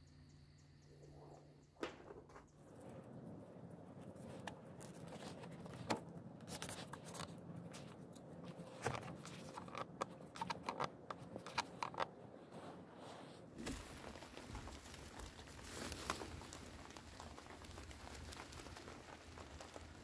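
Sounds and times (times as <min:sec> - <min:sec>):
rope rustling and sliding: 0:12.3 - 0:20.0.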